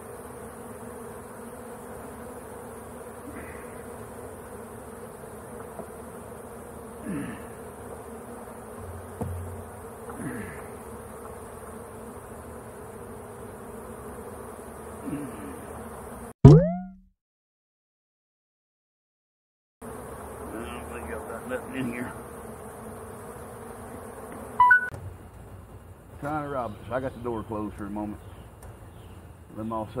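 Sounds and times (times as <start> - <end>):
bee flying past: 0.0 - 16.4, 19.8 - 26.4
bees buzzing: 0.0 - 16.4, 19.8 - 30.0.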